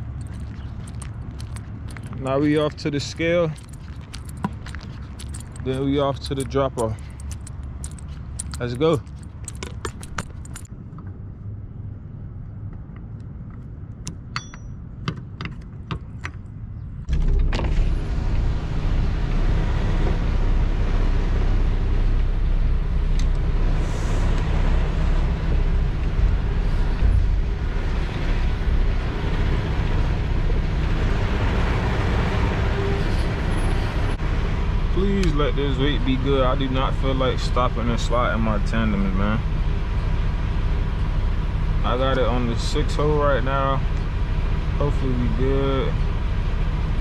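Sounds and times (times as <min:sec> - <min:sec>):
truck diesel engine: 0:00.0 - 0:10.7, 0:17.0 - 0:47.0
low hum: 0:16.1 - 0:47.0.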